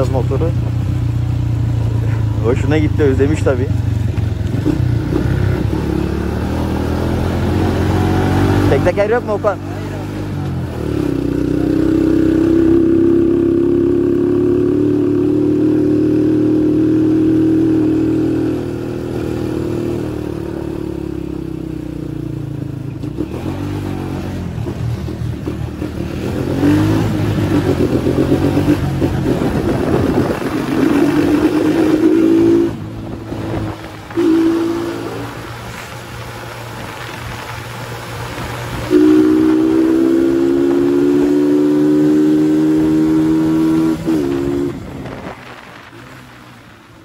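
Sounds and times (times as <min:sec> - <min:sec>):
small motorcycle engine revving: 0:04.4 - 0:21.4, 0:23.0 - 0:35.9, 0:38.4 - 0:45.8.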